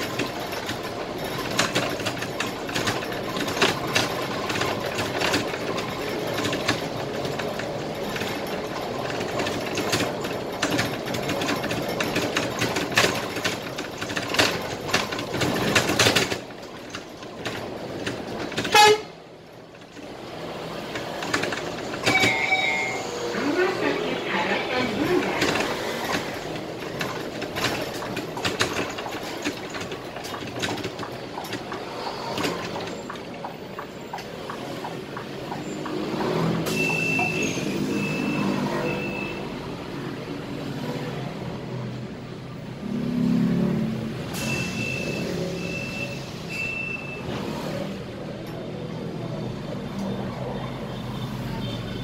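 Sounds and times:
rattles and clicks: 0.0 - 22.6, 24.8 - 37.8
bus engine and road noise: 0.0 - 52.0
short high beeps: 22.0 - 23.4, 36.7 - 39.5, 44.4 - 47.3.

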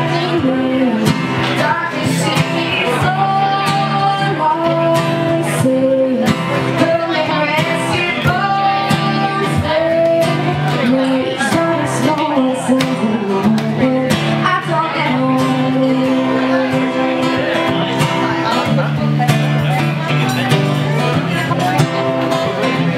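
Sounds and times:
woman singing: 0.0 - 17.9
strummed acoustic guitar: 0.0 - 22.9.

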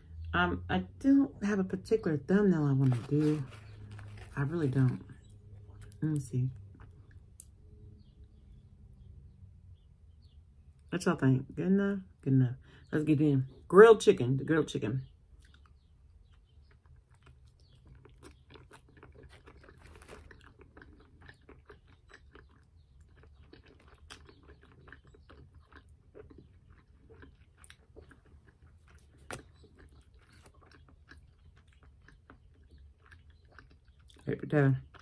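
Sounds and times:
chewing food: 2.9 - 9.3, 15.2 - 35.0.

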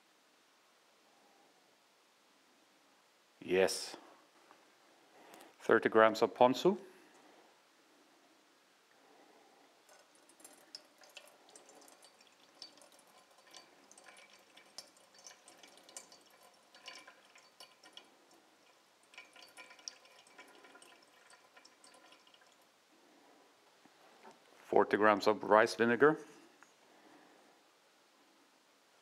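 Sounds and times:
liquid dripping into metal bowl: 9.8 - 22.7.

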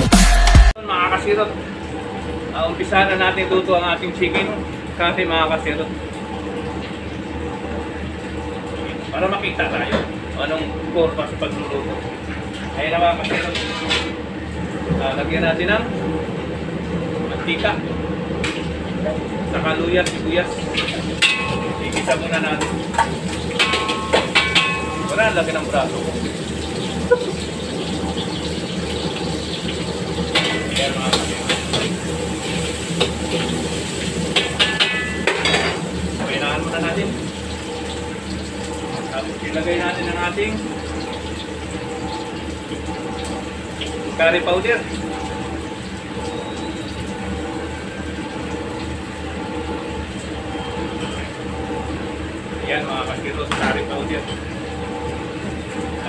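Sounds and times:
gas wok range running: 0.8 - 56.0
onion sizzling in hot oil: 20.6 - 51.6
ladle clinking and scraping wok: 20.8 - 25.2.

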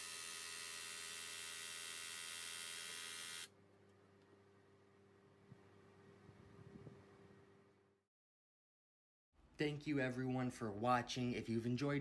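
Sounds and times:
electric pump buzzing: 0.0 - 3.5.

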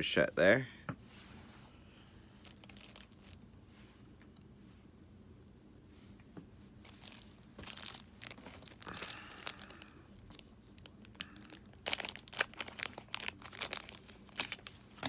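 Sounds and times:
foil wrapper crinkling and tearing: 2.4 - 3.5, 6.8 - 15.0.

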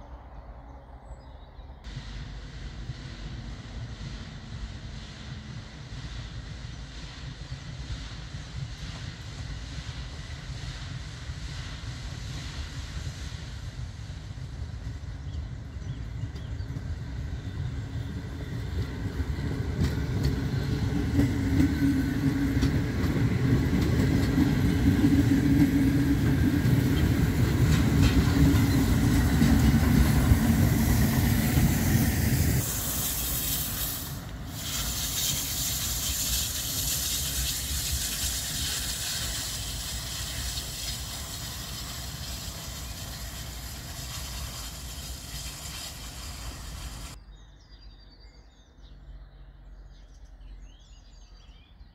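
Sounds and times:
steam train rumbling on rails: 0.0 - 47.2
distant train hiss: 0.0 - 47.4.

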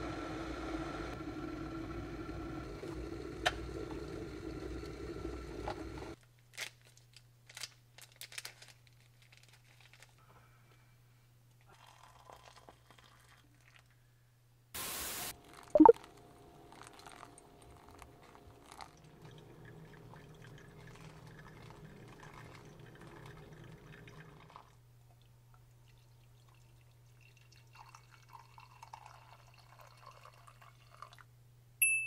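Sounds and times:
hot water trickling from kettle: 11.7 - 13.9, 15.3 - 24.8, 25.7 - 31.2
coffee dripping into mug: 16.7 - 24.8, 25.9 - 31.2.

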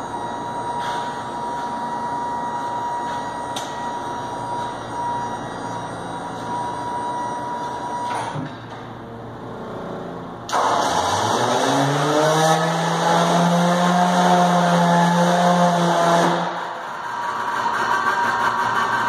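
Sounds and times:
thin steady whine: 0.0 - 10.5
background machine noise: 0.0 - 19.0.

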